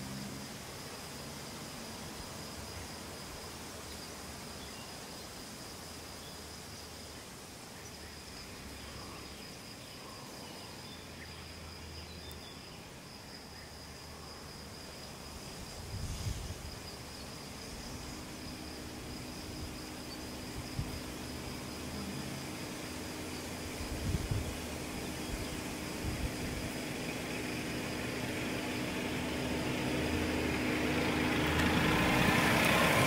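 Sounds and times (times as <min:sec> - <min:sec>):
insect trilling: 0:07.8 - 0:32.8.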